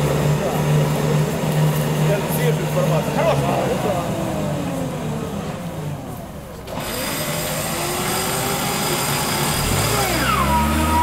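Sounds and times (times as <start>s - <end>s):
car engine running: 0.0s - 11.0s
electric winch whining: 6.6s - 11.0s.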